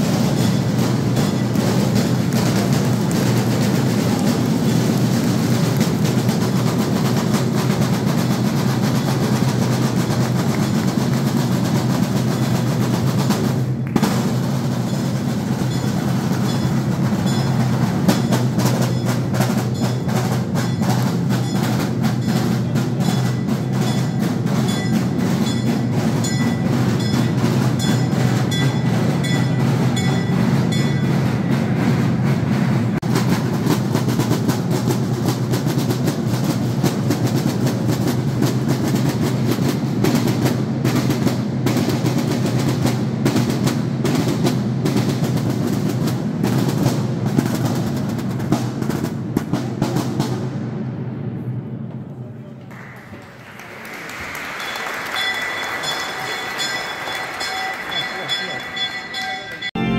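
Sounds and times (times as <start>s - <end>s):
side drums beaten with sticks: 0.0s - 51.3s.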